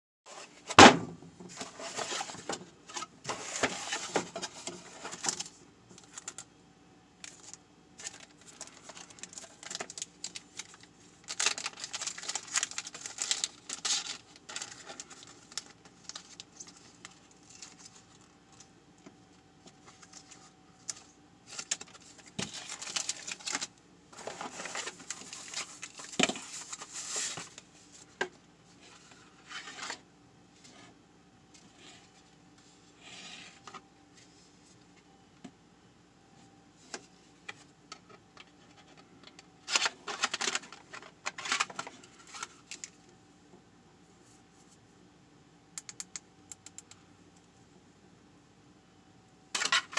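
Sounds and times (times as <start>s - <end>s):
faint steady hum: 0.3s - 49.9s
plastic bags crinkling: 7.2s - 18.7s, 19.9s - 27.6s, 39.6s - 43.0s.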